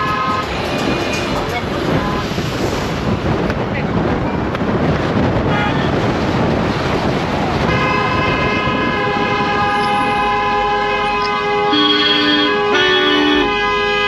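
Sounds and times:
vehicle horns honking: 0.0 - 0.7, 5.5 - 6.0, 7.6 - 14.0
wind on microphone: 0.0 - 13.8.

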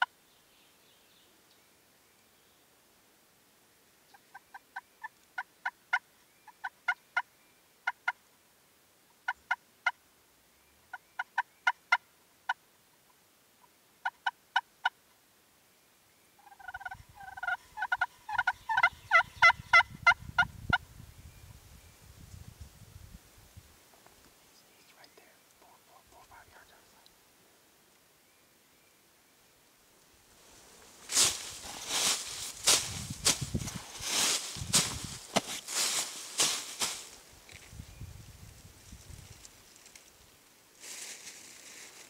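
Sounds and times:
wild turkey yelping: 16.4 - 20.5.

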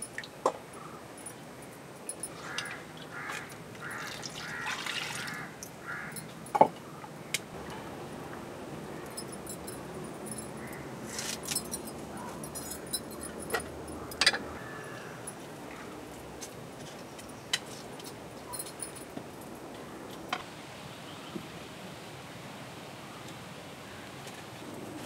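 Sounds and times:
steady background hiss: 0.0 - 25.0
glass bangles jingling: 1.2 - 2.8, 9.0 - 14.3, 17.2 - 19.1
clay pots and utensils clinking: 9.1 - 14.5.

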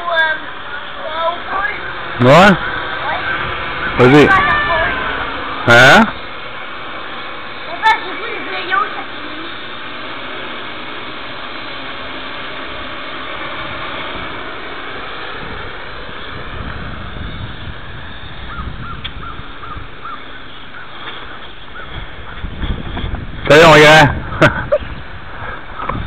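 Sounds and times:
drone motors and propellers: 0.0 - 26.0.

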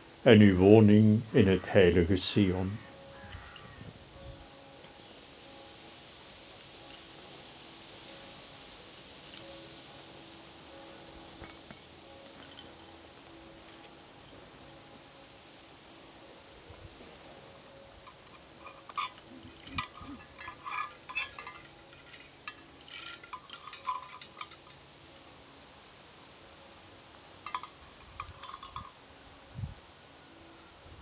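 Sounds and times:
light metallic clinking: 2.9 - 15.8, 17.1 - 25.3, 27.2 - 29.1.

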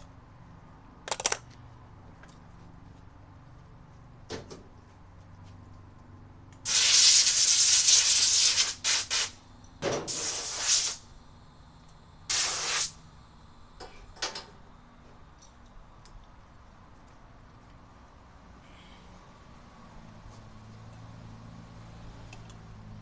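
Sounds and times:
compressed air hissing: 6.6 - 9.4, 10.0 - 11.1, 12.2 - 13.2.

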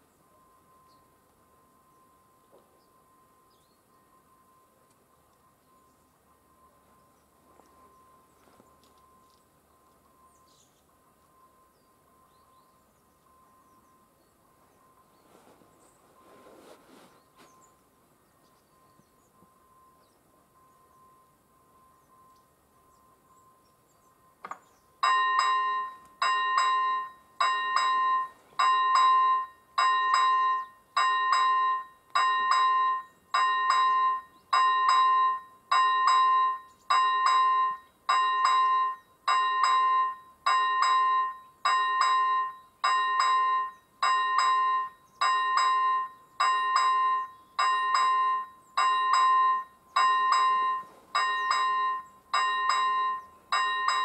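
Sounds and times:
level crossing bell ringing: 25.0 - 54.0.

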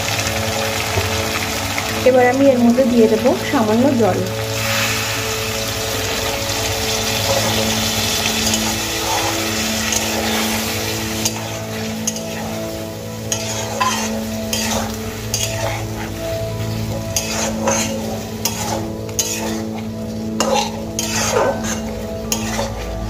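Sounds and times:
water sizzling in hot oil: 0.0 - 23.0
spatula scraping metal pan: 13.3 - 16.2, 17.2 - 22.8.

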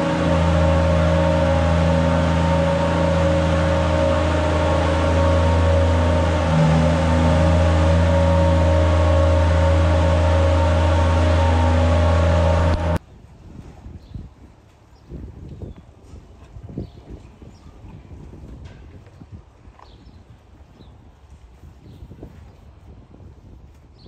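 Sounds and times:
feed wagon machinery droning: 0.0 - 13.0.

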